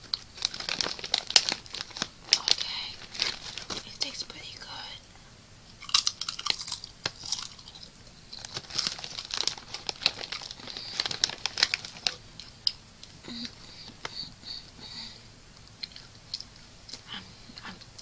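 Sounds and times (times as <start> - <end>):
plastic snack bag crinkling: 0.0 - 4.8, 5.8 - 12.8.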